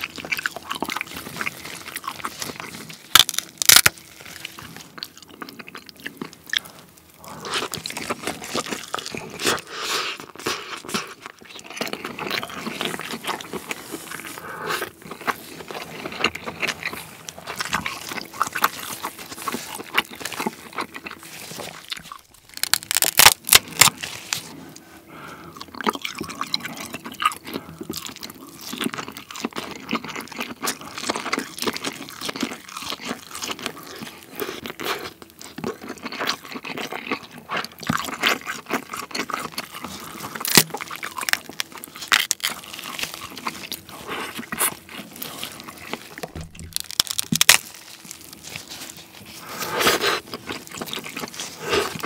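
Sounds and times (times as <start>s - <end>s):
wet chewing: 0.0s - 52.0s
crab shell cracking: 2.1s - 4.1s, 19.8s - 24.0s, 37.8s - 43.8s, 45.5s - 49.1s.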